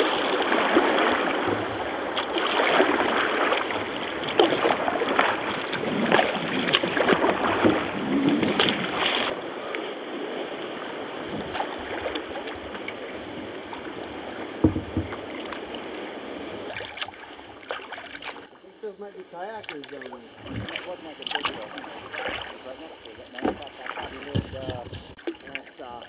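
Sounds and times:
paddle blades splashing: 0.0s - 26.0s
water washing against hull: 0.0s - 26.0s
thump: 14.6s - 15.2s.

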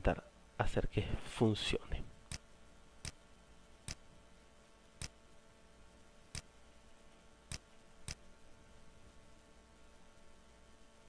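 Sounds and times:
faint background hum: 0.0s - 11.0s
computer mouse clicks: 7.5s - 8.2s.

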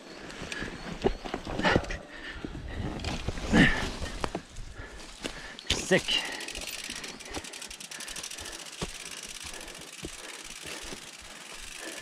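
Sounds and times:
bike tyre and wind noise: 0.0s - 12.0s
bike rattling: 0.1s - 12.0s
fast even ticking: 5.8s - 12.0s.

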